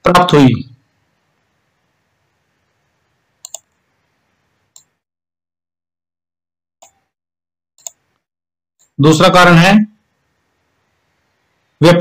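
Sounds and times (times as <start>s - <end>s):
computer mouse clicks: 3.4s - 3.8s, 4.7s - 5.0s, 6.8s - 7.1s, 7.8s - 8.2s.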